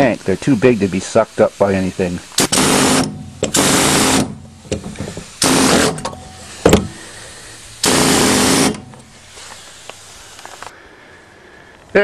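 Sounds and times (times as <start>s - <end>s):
power tool cutting metal: 2.4s - 4.4s, 5.4s - 6.9s, 7.8s - 8.9s.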